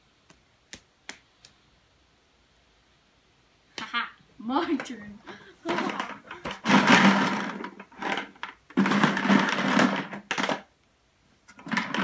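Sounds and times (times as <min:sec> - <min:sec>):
markers rattling in plastic bucket: 0:05.7 - 0:10.7, 0:11.5 - 0:12.0.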